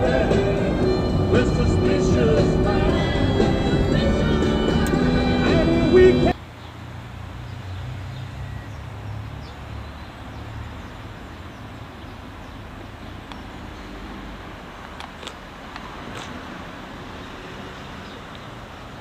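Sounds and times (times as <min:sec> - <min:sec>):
low uneven rumble: 0:00.0 - 0:06.1.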